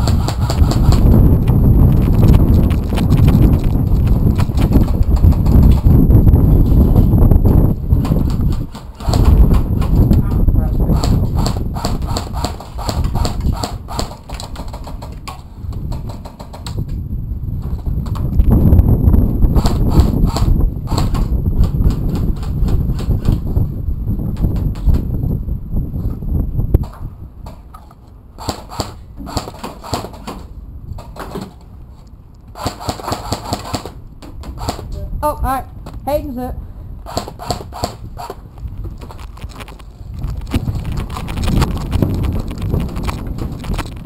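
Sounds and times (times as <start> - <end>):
gear clicking and knocking: 0.0 - 6.0, 37.1 - 44.0
wind rumble on microphone: 0.0 - 44.0
airsoft guns firing: 32.6 - 34.9
footsteps: 38.2 - 44.0.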